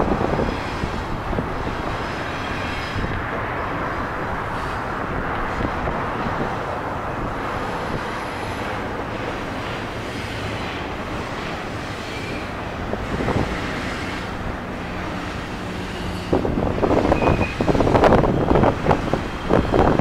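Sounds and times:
train rolling across steel bridge: 0.0 - 20.0
clatter of train wheels: 7.4 - 20.0.

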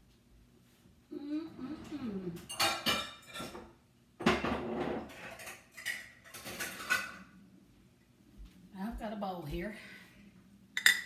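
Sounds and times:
dishes clattering: 2.4 - 7.4, 10.8 - 11.0.

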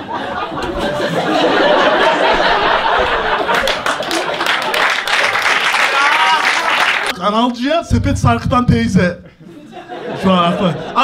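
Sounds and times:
audience laughing: 0.0 - 7.1, 9.3 - 11.0.

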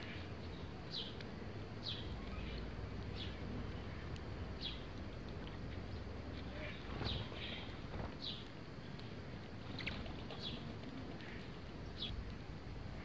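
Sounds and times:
low background rumble: 0.0 - 13.0
sparrows chirping: 0.0 - 13.0.

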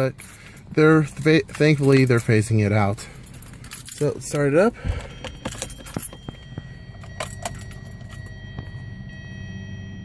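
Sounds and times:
keys jangling: 0.0 - 8.4
low steady hum: 0.0 - 10.0.

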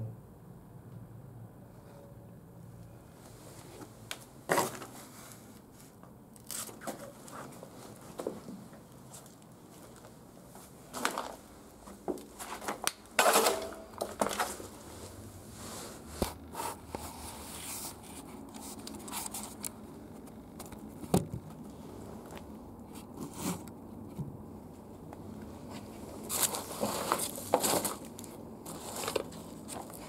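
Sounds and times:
paper and debris rustling: 10.0 - 15.2, 25.6 - 30.0.

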